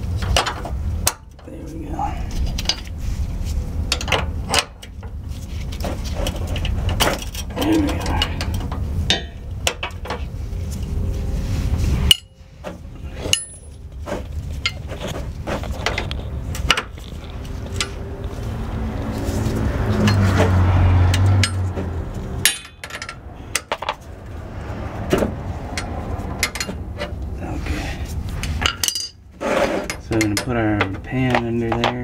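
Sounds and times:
steady low hum: 0:00.0 - 0:31.2
metal wrenches clinking on fittings: 0:28.6 - 0:29.2, 0:29.8 - 0:32.0.

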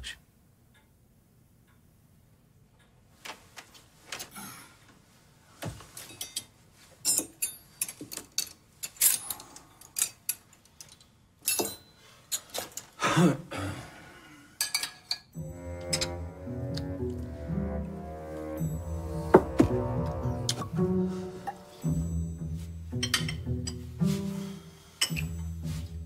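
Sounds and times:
low bowed string music: 0:15.4 - 0:26.0
plates cutlery and glasses clinking: 0:22.9 - 0:24.0, 0:25.0 - 0:25.7.

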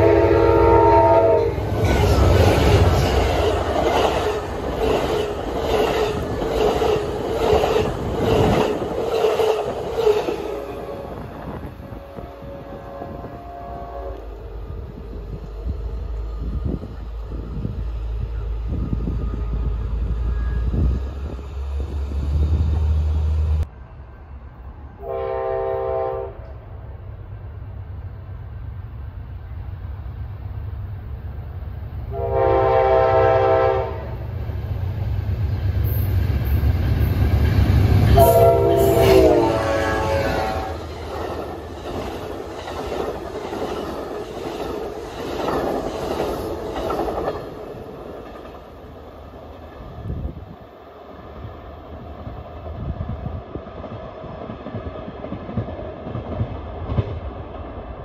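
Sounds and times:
train horn blasts: 0:00.0 - 0:02.2, 0:10.4 - 0:15.1, 0:25.0 - 0:26.6, 0:32.1 - 0:34.3, 0:38.0 - 0:40.9
train rumbling past: 0:00.0 - 0:58.0
train wheels clickety-clack: 0:01.7 - 0:11.6, 0:34.5 - 0:48.9, 0:52.7 - 0:57.9.

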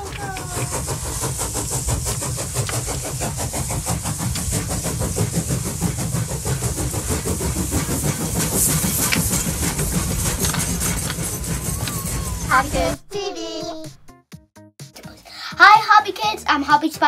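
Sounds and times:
fast steady chugging: 0:00.0 - 0:13.0
hiss: 0:00.0 - 0:13.0.

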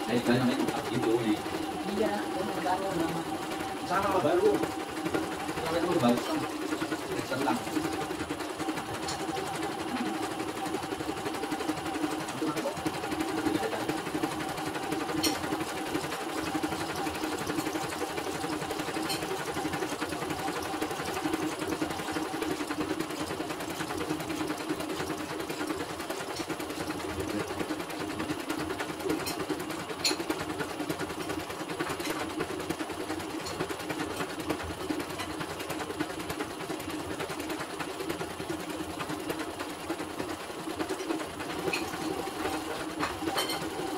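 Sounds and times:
embroidery machine stitching: 0:00.0 - 0:43.9.

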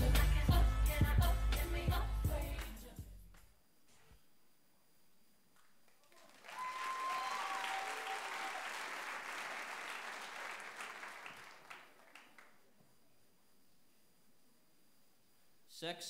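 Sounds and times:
audience applauding and cheering: 0:06.0 - 0:12.6.

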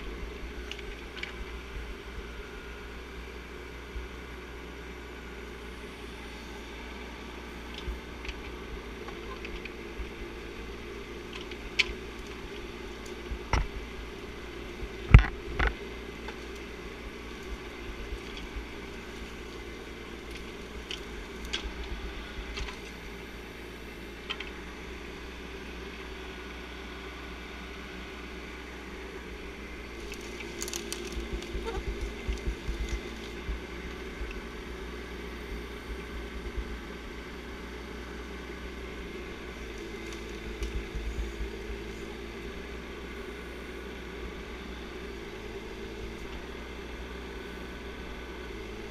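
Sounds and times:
excavator engine running: 0:00.0 - 0:48.9
sharp knocks and cracks: 0:30.0 - 0:33.6.

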